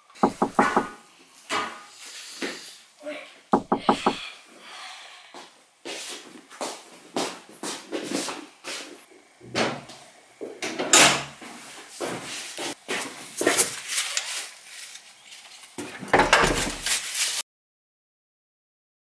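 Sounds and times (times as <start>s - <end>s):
heavy door thuds: 0.2s - 1.0s, 3.6s - 4.2s.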